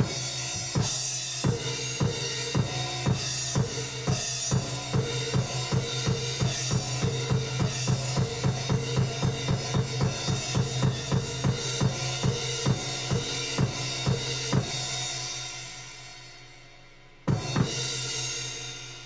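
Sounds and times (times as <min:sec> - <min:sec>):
drum-driven music over speakers: 0:00.0 - 0:19.0.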